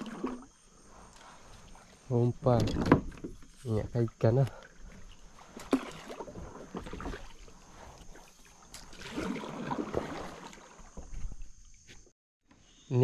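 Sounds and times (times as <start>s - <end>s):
paddle splashing in water: 0.0s - 0.6s, 4.6s - 11.1s.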